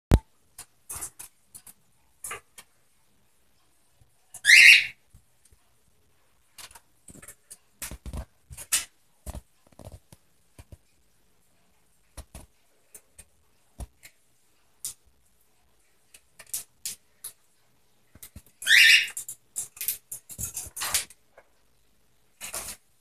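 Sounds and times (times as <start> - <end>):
cockatiel call: 4.4 - 5.0, 18.6 - 19.2.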